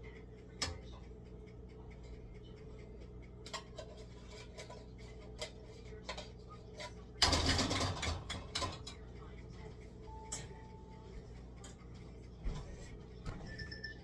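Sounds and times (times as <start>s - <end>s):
light clicks and taps: 0.0s - 7.2s.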